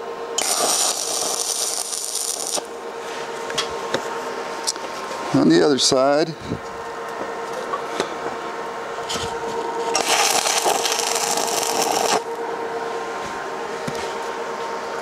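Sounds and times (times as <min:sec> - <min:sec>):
steady hum: 0:00.0 - 0:15.0
welding arc crackling hiss: 0:00.4 - 0:02.7, 0:09.8 - 0:12.3.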